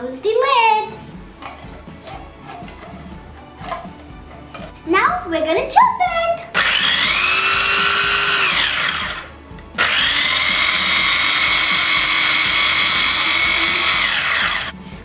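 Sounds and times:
electric mini chopper whining: 0:06.5 - 0:14.8.

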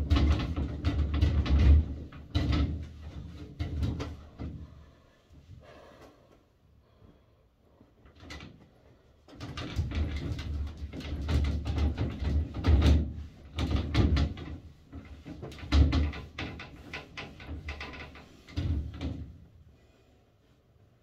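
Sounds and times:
glass panels knocking and rattling: 0:00.0 - 0:04.6, 0:09.3 - 0:19.4.

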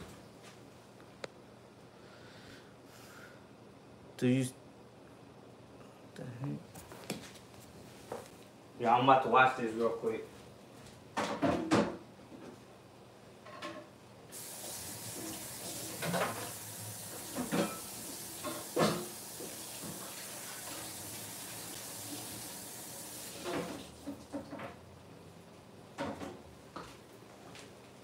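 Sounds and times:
water running from a tap: 0:14.3 - 0:24.0.

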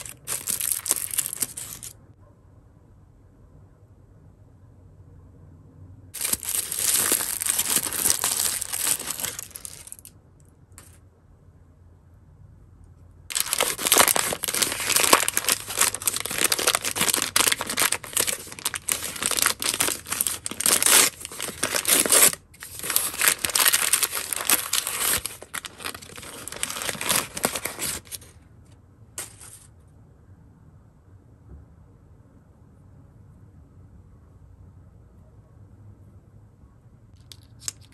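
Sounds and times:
plastic packet crinkling and tearing: 0:00.0 - 0:01.9, 0:06.2 - 0:10.1, 0:13.3 - 0:28.3.

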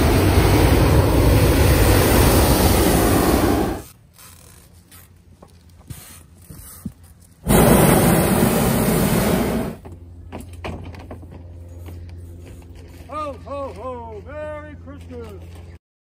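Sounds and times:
propane burner roaring: 0:00.0 - 0:03.9, 0:07.2 - 0:10.0
low hum: 0:00.0 - 0:05.8, 0:07.1 - 0:15.8.

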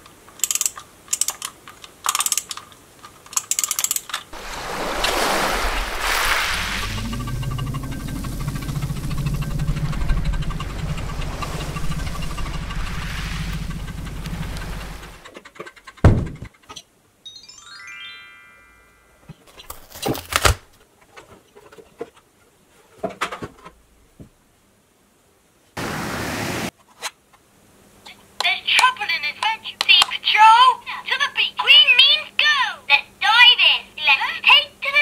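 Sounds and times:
short rising sweep: 0:04.4 - 0:15.2
music with pulsing low beat: 0:07.0 - 0:15.2
toys and packaging handled: 0:19.5 - 0:20.8.

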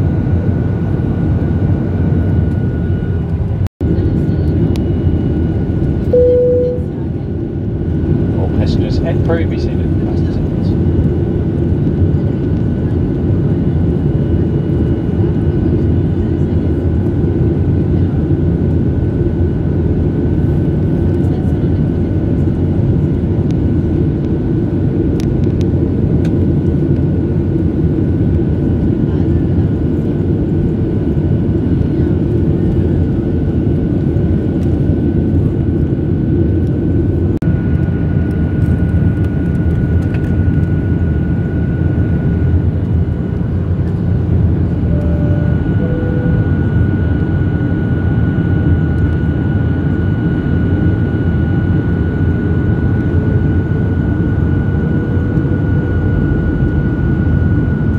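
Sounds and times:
airliner cabin engine roar: 0:00.0 - 0:57.9
thin steady high tone: 0:06.1 - 0:06.9, 0:44.8 - 0:47.2.

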